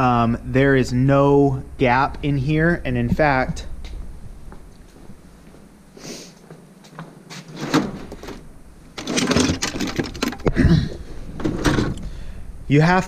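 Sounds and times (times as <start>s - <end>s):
metal drawer opening: 7.4s - 10.4s, 11.3s - 12.0s
tools clattering in a drawer: 9.0s - 10.5s.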